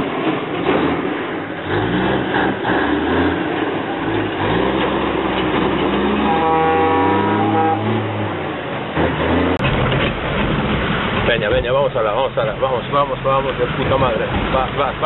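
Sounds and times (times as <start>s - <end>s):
truck air horn: 6.1s - 8.3s.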